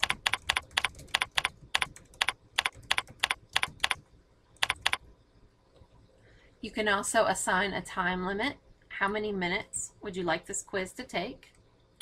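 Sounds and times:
computer keyboard typing: 0.0 - 4.0, 4.6 - 5.0.

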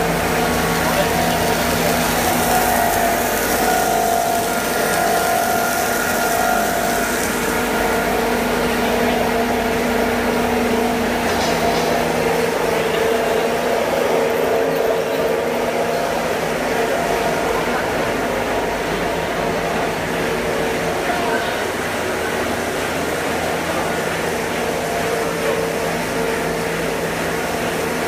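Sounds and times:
processing machine hum: 0.0 - 28.0.

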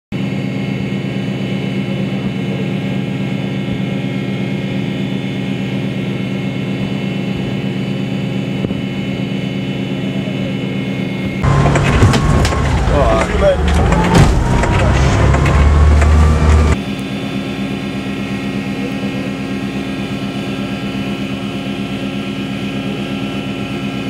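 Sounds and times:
ship engine droning: 10.6 - 18.7.

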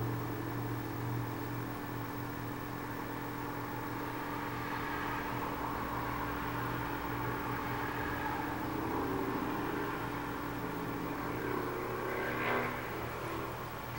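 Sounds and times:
whining stage motors: 0.0 - 13.9.

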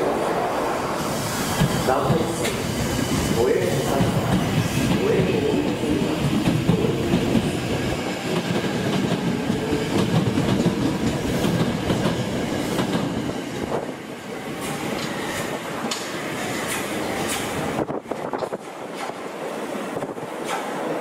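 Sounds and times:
train wheels clacking over joints: 4.0 - 13.8, 14.6 - 19.2.

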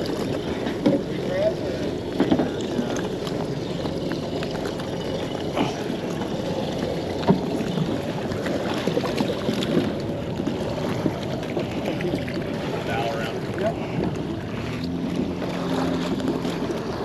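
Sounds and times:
water splashing against kayak hull: 0.0 - 17.0.

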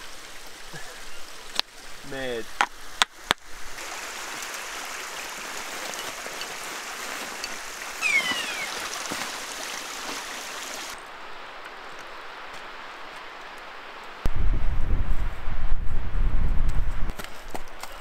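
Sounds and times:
running water rushing: 0.0 - 14.2
falling whistle-like call: 8.0 - 9.0.

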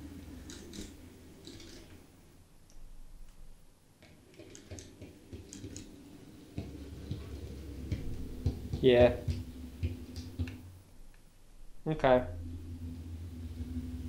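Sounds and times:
model train motor hum: 0.0 - 2.1
sharp gear clicking: 0.4 - 2.0.

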